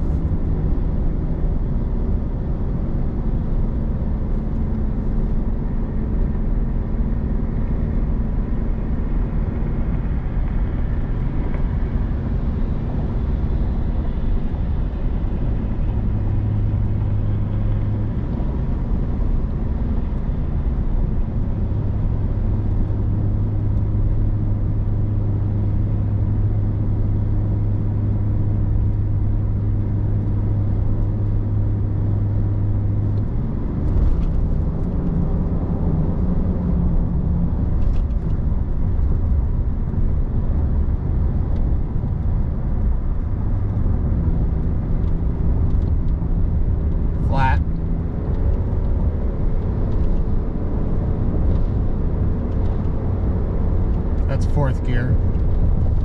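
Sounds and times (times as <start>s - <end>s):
diesel engine droning under load: 42.9s - 56.0s.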